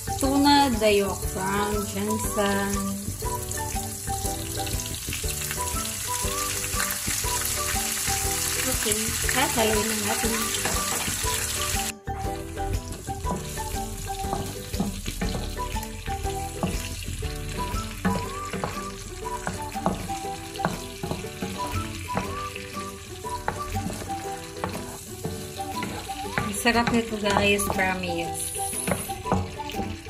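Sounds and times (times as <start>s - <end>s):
sauce sizzling in a frying pan: 0.0s - 30.0s.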